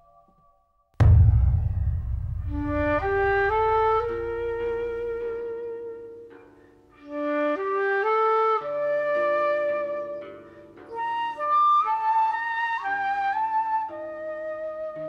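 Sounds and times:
low drone: 1.0 - 5.2
flute melody: 7.0 - 15.0.

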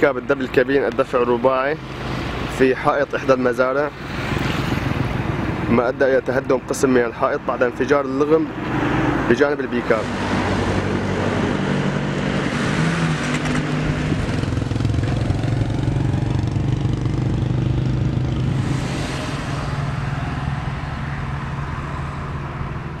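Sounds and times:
engine running steadily: 9.7 - 23.0.

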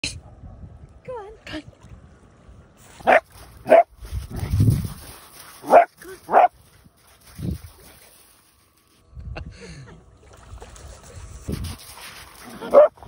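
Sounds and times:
puppy barking: 3.0 - 3.9, 5.6 - 6.5, 12.6 - 13.0.

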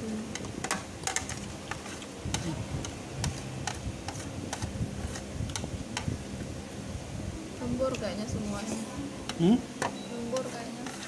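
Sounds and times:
chopsticks clicking on a steel tray: 9.3 - 11.0.

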